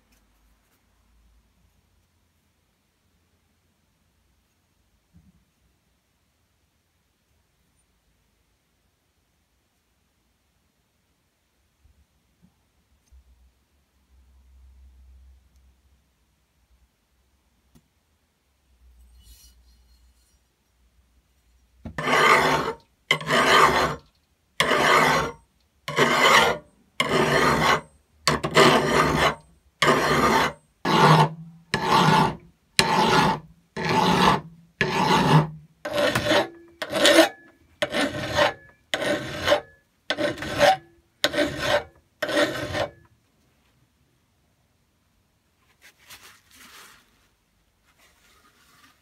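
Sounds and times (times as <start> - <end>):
hand file rasping on steel: 22.0 - 43.0.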